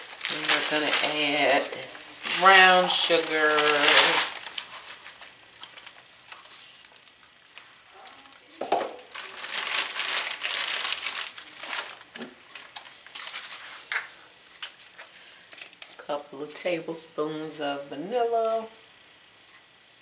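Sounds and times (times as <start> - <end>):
paper bag crinkling: 0.0 - 15.8.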